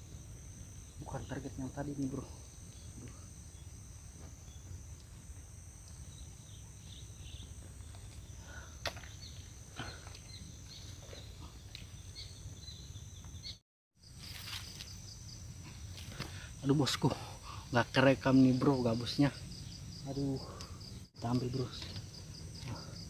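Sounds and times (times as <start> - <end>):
high insect drone: 0.0 - 23.0.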